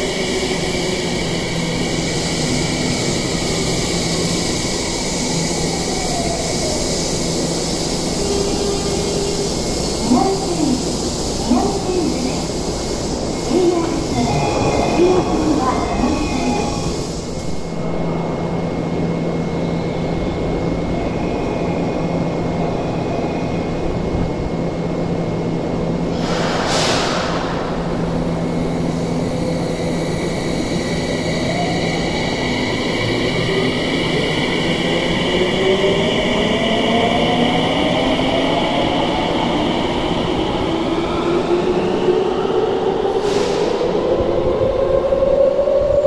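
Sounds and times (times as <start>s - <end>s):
burst of hiss: 26.1s - 29.1s.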